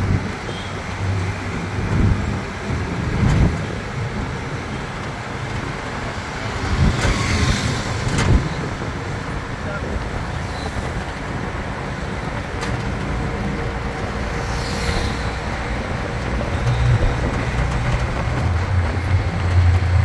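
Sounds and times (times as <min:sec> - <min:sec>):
road and traffic noise: 0:00.0 - 0:20.0.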